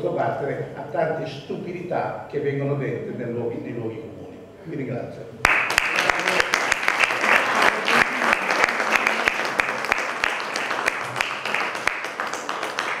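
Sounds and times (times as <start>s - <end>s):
audience applauding: 5.4s - 13.0s.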